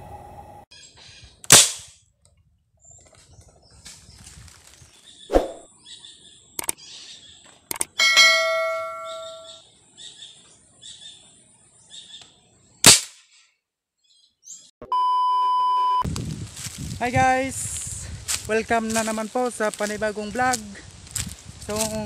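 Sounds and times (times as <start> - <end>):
steady electronic tone: 0.0 - 0.7
birds chirping: 2.8 - 12.8, 18.1 - 22.0
ringing metallic clang: 8.0 - 9.6.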